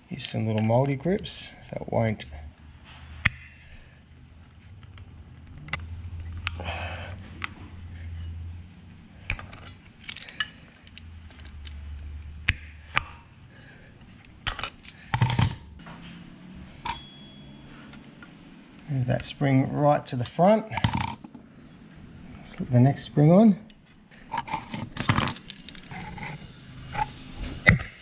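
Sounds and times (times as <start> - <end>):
metallic clicks of grips: 9.2 - 13.2.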